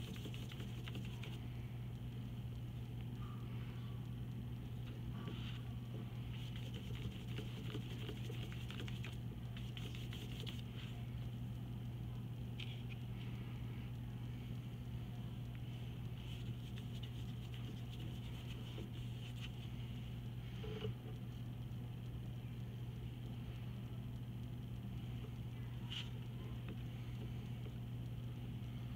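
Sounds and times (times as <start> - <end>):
low hum: 0.0 - 28.9
paintbrush swishing on paper: 5.2 - 11.0, 16.2 - 19.8.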